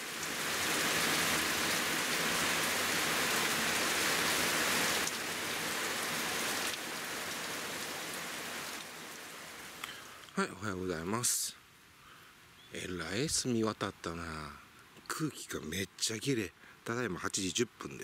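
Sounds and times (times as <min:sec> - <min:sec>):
heavy rain on tent fabric: 0:00.0 - 0:11.0.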